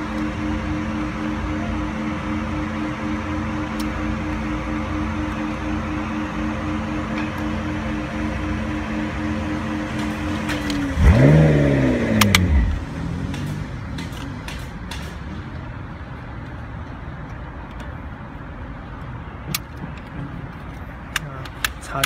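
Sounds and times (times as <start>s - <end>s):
steady hum: 0.0s - 15.2s
vehicle engine revving: 0.0s - 15.5s.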